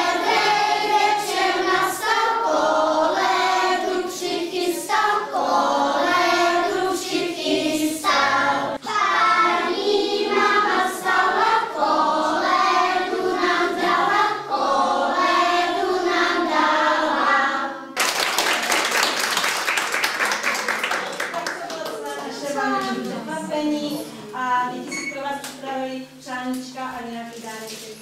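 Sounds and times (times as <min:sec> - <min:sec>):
children singing together: 0:00.0 - 0:18.0
audience applause: 0:18.0 - 0:22.2.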